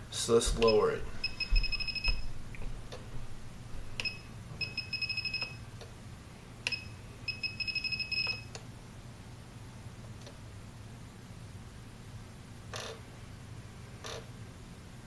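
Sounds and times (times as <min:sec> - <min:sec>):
rapid high beeps: 0:00.6 - 0:02.3, 0:04.0 - 0:05.6, 0:06.7 - 0:08.4
single beeps: 0:00.6 - 0:02.3.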